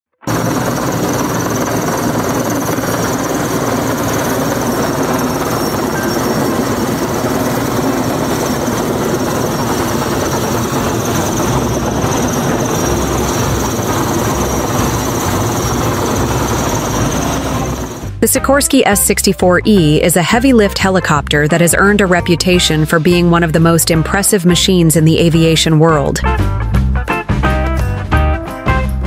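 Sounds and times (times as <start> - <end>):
helicopter rotor and turbine noise: 0.2 - 26.1
thin high whine: 0.3 - 18.2.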